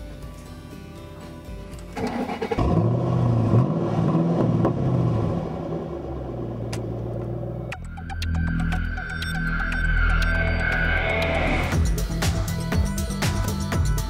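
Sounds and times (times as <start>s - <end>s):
car engine starting and revving: 1.9s - 7.7s.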